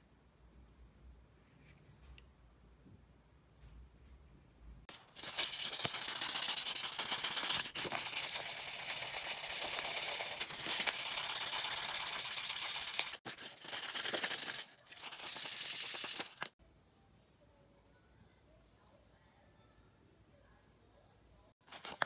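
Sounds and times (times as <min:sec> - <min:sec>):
sanding pad scratching metal: 0:05.2 - 0:16.5.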